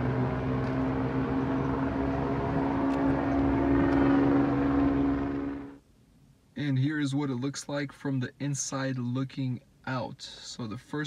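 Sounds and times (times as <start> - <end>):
engine drone: 0.0 - 5.8.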